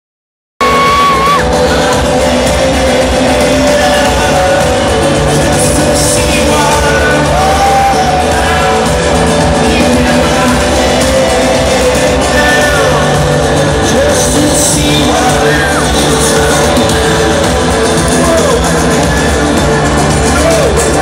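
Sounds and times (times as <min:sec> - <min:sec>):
live rock band with singer: 0:00.6 - 0:21.0.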